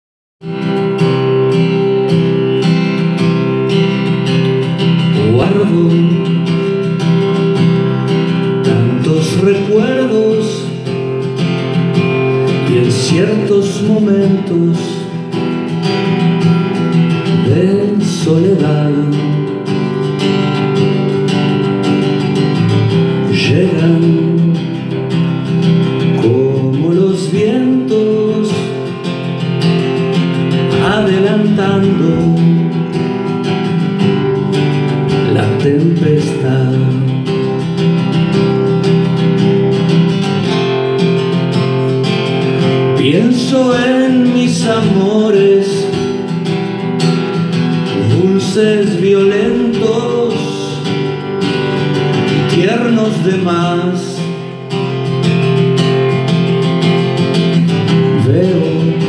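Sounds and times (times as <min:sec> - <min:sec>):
acoustic guitar chords: 0:00.4 - 0:59.0
man singing into a microphone: 0:04.8 - 0:11.3, 0:12.0 - 0:15.7, 0:17.1 - 0:21.2, 0:22.7 - 0:29.4, 0:30.0 - 0:34.0, 0:35.0 - 0:37.6, 0:42.6 - 0:46.6, 0:47.5 - 0:55.0, 0:57.9 - 0:59.0.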